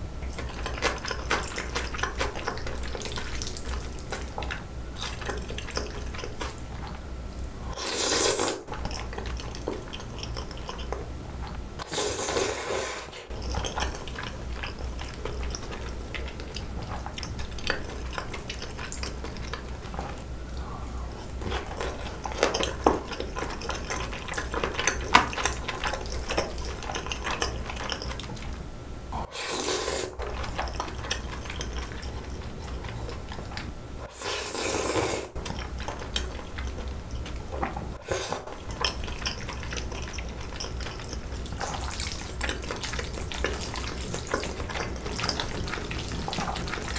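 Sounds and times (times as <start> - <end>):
low steady hum: 0.0 - 7.8, 8.6 - 12.3, 13.1 - 29.3, 30.1 - 34.2, 35.3 - 46.9
wet chewing: 0.0 - 12.4, 13.3 - 46.9
slurping noodles: 7.6 - 10.9, 11.8 - 28.3, 29.2 - 33.4, 34.0 - 37.0, 37.9 - 46.9.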